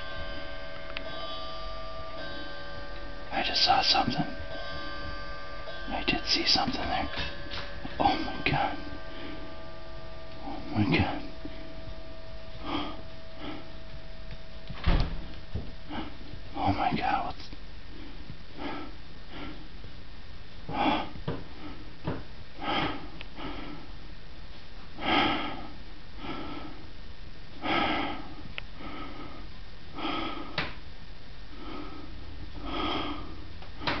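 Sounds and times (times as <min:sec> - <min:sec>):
clock striking gong strokes: 0:00.0 - 0:15.9.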